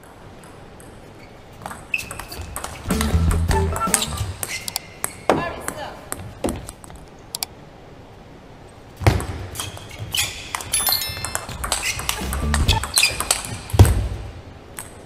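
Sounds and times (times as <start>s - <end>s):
ping pong ball hitting paddles: 0.0s - 6.6s, 9.0s - 14.0s
ball bouncing on table: 10.5s - 14.1s.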